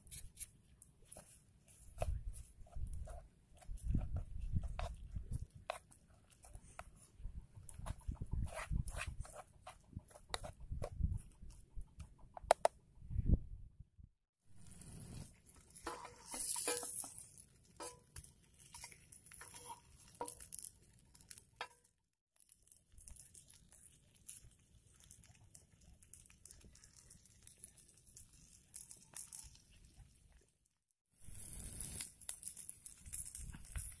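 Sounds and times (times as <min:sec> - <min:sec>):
patties sizzling in frying pan: 0:14.6 - 0:21.6, 0:31.3 - 0:34.0.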